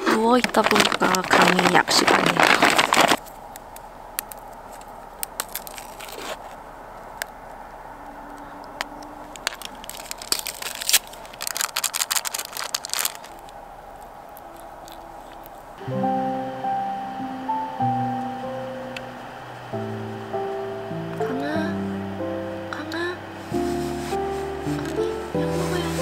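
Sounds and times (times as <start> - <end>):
plastic bag crinkling: 0.0 - 6.7, 8.3 - 15.8.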